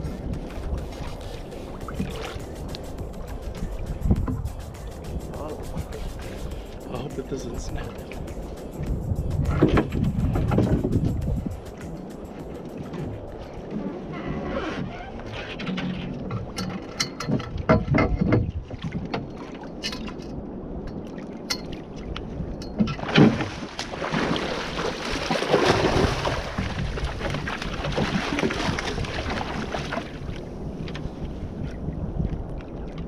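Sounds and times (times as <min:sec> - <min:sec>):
sharp knocks and clicks: 0:16.3 - 0:20.2
fish thrashing in water: 0:23.0 - 0:30.4.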